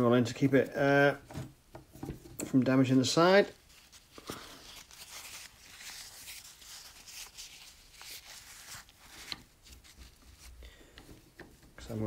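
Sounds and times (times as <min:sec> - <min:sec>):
paper towel rustling: 0:02.8 - 0:10.6.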